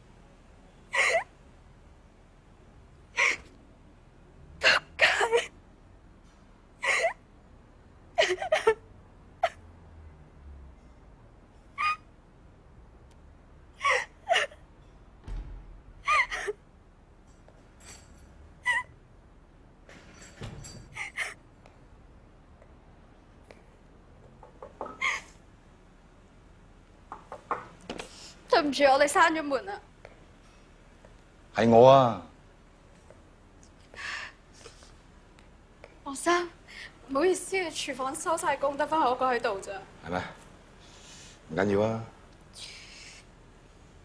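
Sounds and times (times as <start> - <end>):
woman crying with gasping sobs: 0.9 - 1.3, 6.8 - 7.2, 8.2 - 8.8, 13.8 - 14.7, 16.0 - 16.6, 21.0 - 21.4.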